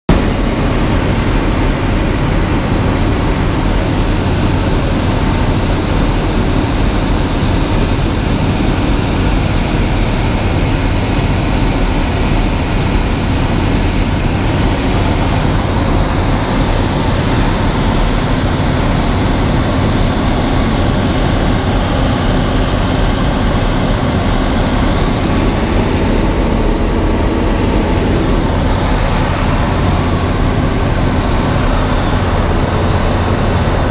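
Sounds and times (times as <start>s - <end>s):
aircraft engine and propeller droning: 0.1s - 33.9s
rush of air: 0.2s - 33.9s.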